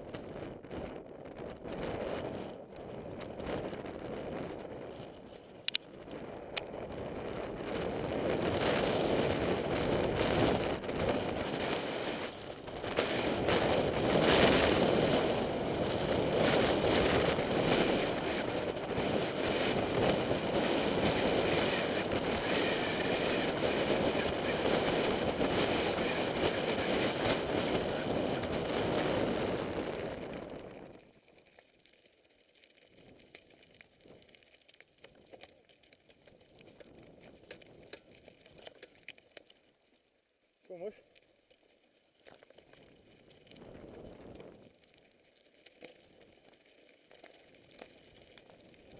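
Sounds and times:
wind buffeting microphone: 0:00.0 - 0:31.0
bike rattling: 0:00.0 - 0:40.4, 0:41.3 - 0:48.9
bike tyres crunching on gravel: 0:00.0 - 0:48.9.

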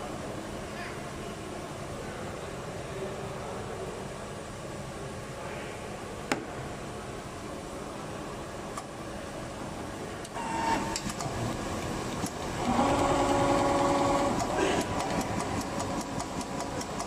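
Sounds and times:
machine-room hum: 0:00.0 - 0:17.0
sewing machine running: 0:10.4 - 0:17.0.

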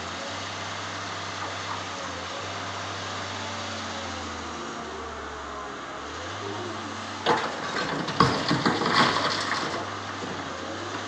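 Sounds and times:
diesel engine running: 0:00.0 - 0:11.0
rocks clattering: 0:07.2 - 0:10.6
rocks striking steel truck bed: 0:07.2 - 0:10.7.

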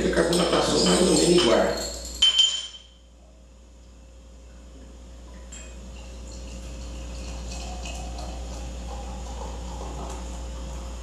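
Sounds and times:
beer pouring into a glass: 0:05.4 - 0:11.0.

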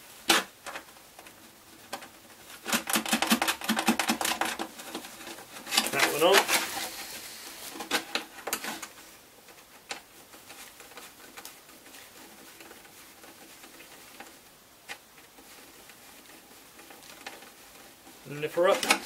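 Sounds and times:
screwdriver scraping and clicking: 0:01.9 - 0:07.1.

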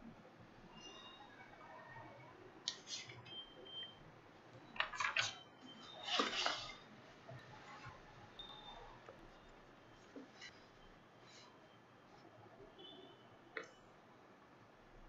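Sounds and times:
book pages rustling: 0:04.8 - 0:06.9.

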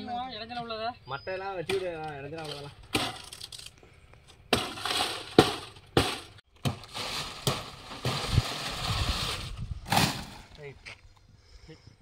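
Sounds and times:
dry fronds rustling: 0:04.4 - 0:10.7.

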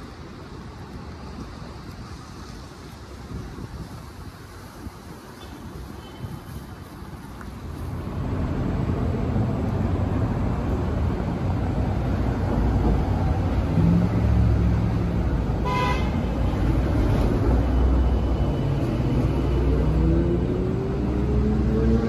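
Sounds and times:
short high horn beep: 0:15.6 - 0:16.1.

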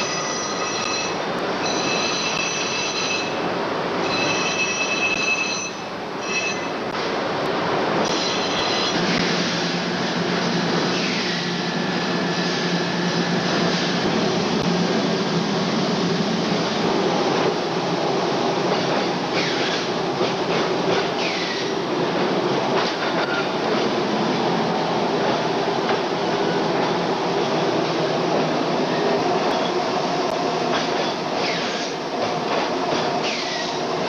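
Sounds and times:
high metallic squeals: 0:08.1 - 0:09.1.

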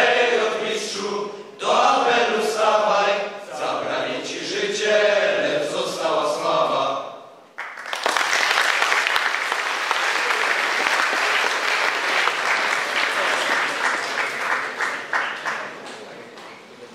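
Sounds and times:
audience applauding: 0:07.6 - 0:16.6.

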